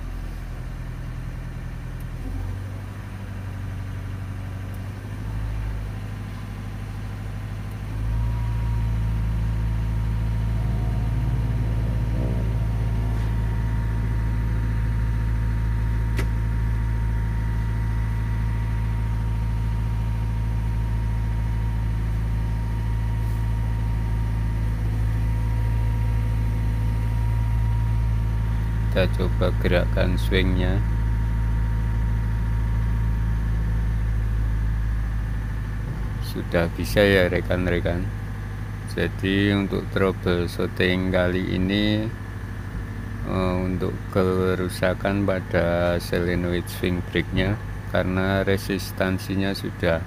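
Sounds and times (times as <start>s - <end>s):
excavator diesel engine revving: 3.9s - 19.0s.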